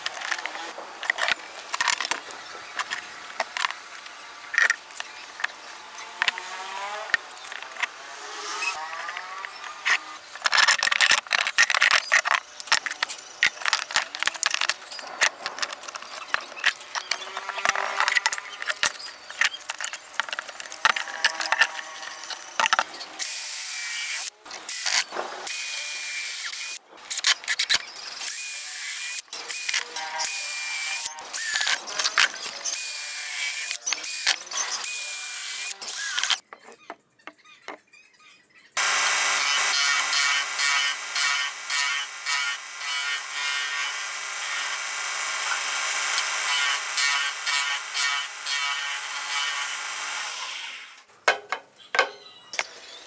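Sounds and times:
cordless drill boring into wood: 23.2s - 26.8s, 28.2s - 31.8s, 32.4s - 36.4s, 38.8s - 51.0s.

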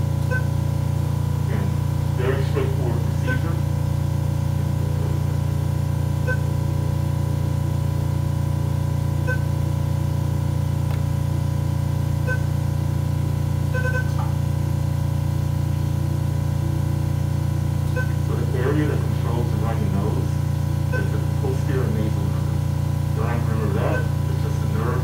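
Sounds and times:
steady low hum: 0.0s - 25.0s
medical equipment beeps: 0.2s - 0.7s, 3.1s - 3.7s, 6.2s - 7.0s, 9.1s - 9.7s, 12.2s - 12.7s, 13.6s - 14.4s, 17.8s - 18.3s, 20.8s - 21.4s, 23.7s - 24.9s.

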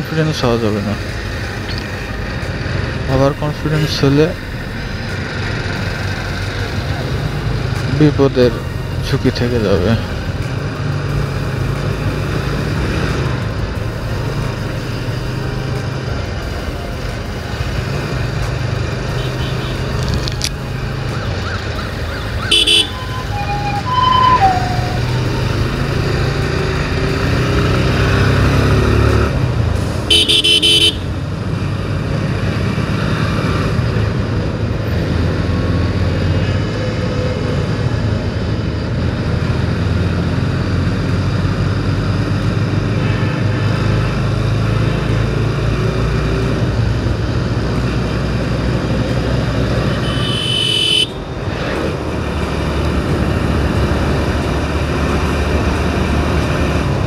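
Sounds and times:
motorcycle running: 0.0s - 57.0s
vehicle horn honking: 19.1s - 19.9s, 22.4s - 25.2s, 30.1s - 31.1s, 49.9s - 51.2s.

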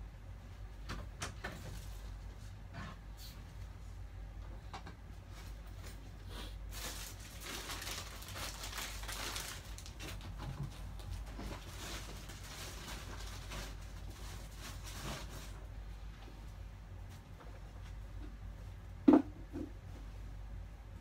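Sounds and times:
steady low hum: 0.0s - 21.0s
bags and cardboard rustling: 5.3s - 15.7s.

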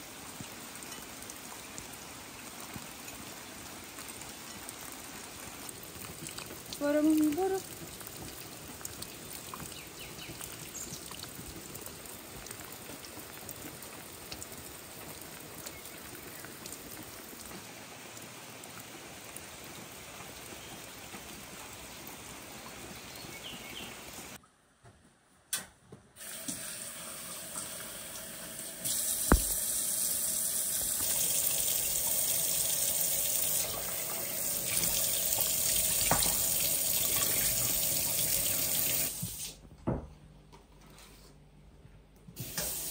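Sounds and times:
steady rain: 0.0s - 24.4s
tap running into metal sink: 29.2s - 29.6s, 36.0s - 36.5s.

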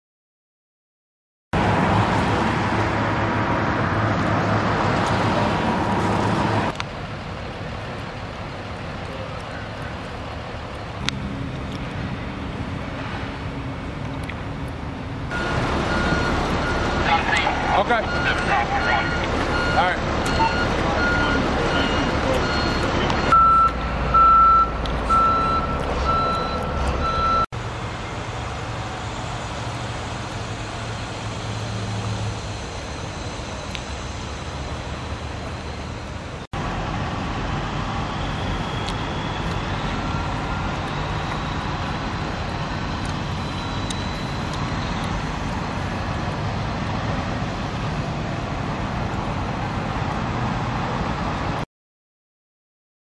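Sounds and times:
drone of engines and outdoor din: 1.6s - 51.6s
engine rumble: 1.6s - 51.6s
reversing alarm beeping: 15.3s - 27.5s, 38.0s - 45.5s.

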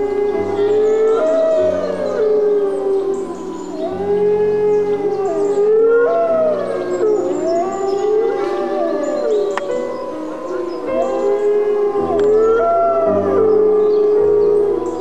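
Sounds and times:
wolves howling in chorus: 0.0s - 15.0s.

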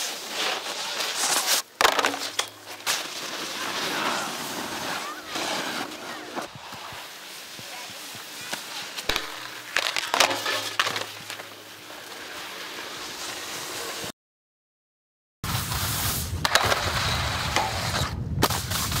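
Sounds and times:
skis grinding on metal rail: 0.0s - 14.1s, 15.5s - 19.0s
skis sliding on snow: 0.0s - 14.1s
wind on microphone: 16.2s - 19.0s.

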